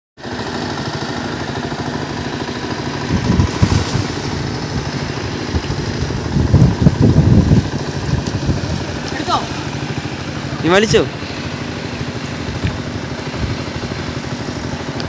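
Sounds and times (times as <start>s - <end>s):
steady low rumble: 1.6s - 15.0s
cast net splashing into water: 3.4s - 5.0s.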